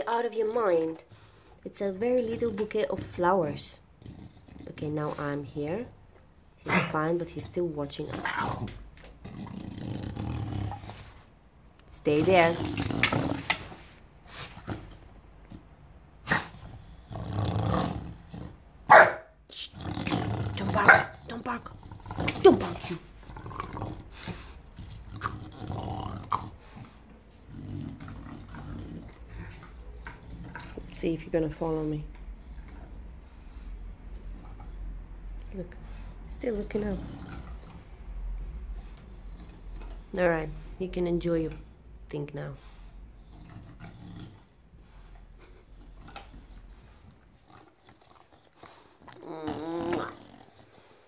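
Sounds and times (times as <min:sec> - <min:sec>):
dog growling low: 0:03.8 - 0:05.4, 0:08.2 - 0:11.2, 0:12.1 - 0:13.8, 0:16.3 - 0:18.8, 0:19.7 - 0:31.1, 0:36.4 - 0:40.2, 0:43.0 - 0:44.6, 0:45.3 - 0:51.0
dog chewing and snuffling: 0:42.7 - 0:51.0.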